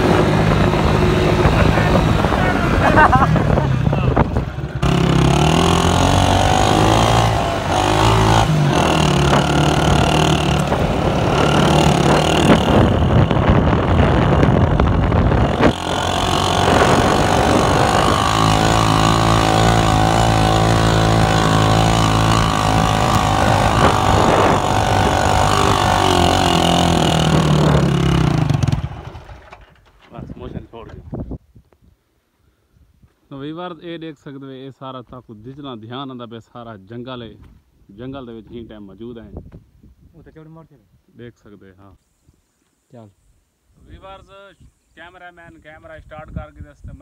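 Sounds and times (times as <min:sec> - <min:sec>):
motorcycle engine revving: 0:00.0 - 0:29.8.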